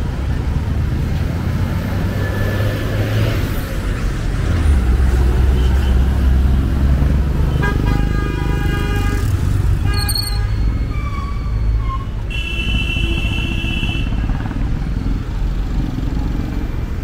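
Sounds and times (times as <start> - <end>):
vehicle horn honking: 7.5 - 10.6, 12.3 - 14.2.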